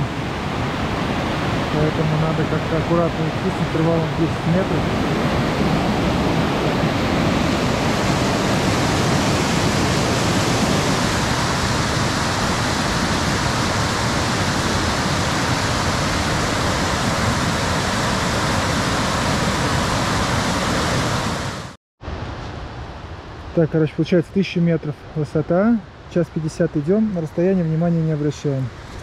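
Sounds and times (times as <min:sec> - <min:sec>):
fast river water rushing: 0:00.0 - 0:22.3.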